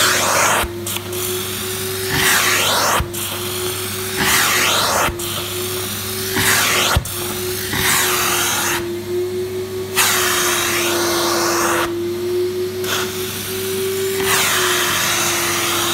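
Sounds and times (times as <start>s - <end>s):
suction machine whine: 0.0s - 15.9s.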